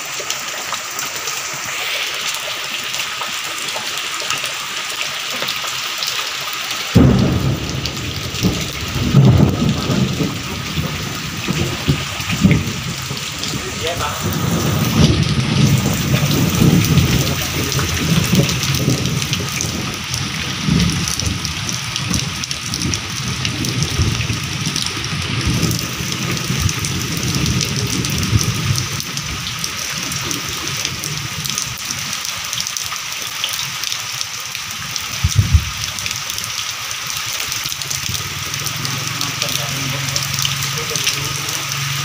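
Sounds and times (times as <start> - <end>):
steady rain falling: 0.0 - 42.0
low rumbling: 7.0 - 29.5.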